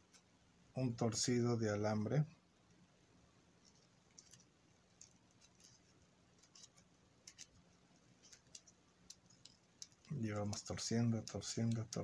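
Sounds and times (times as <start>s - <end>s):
wire twisting clicks and rustles: 3.6s - 12.0s.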